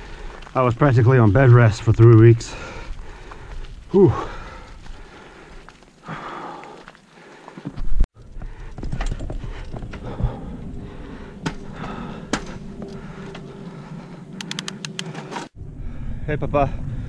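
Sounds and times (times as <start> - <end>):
bike tyres on gravel: 0.0 - 13.9
bike clicks and rattles: 8.2 - 10.4, 14.4 - 15.5.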